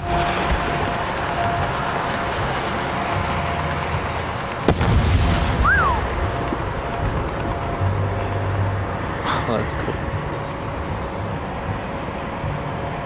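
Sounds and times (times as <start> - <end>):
firework bang: 0.0 - 9.4
background rumble: 0.0 - 13.0
whistle-like tone: 5.5 - 8.6.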